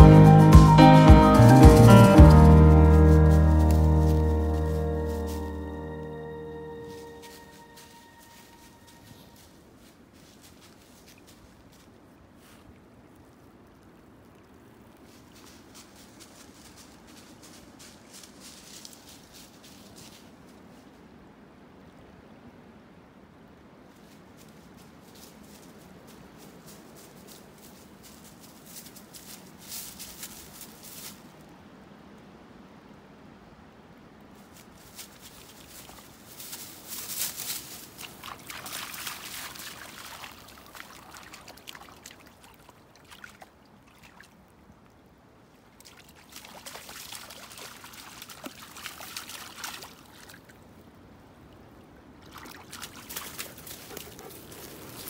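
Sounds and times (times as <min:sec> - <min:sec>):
stream trickling: 0:01.8 - 0:20.3, 0:34.6 - 0:55.0
dog splashing through water: 0:37.7 - 0:44.3, 0:45.8 - 0:50.5, 0:52.2 - 0:55.0.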